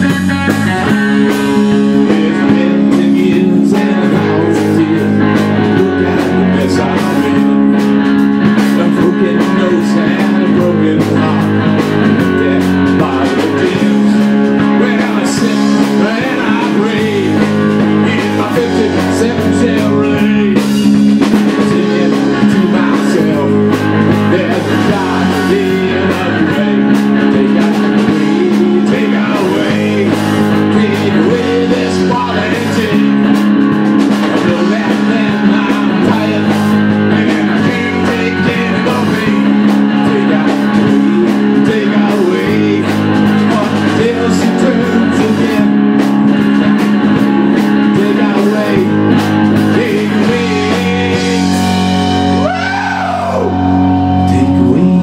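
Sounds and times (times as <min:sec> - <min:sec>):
bass guitar: 0:00.0 - 0:55.0
drum kit: 0:00.0 - 0:55.0
electric guitar: 0:00.0 - 0:55.0.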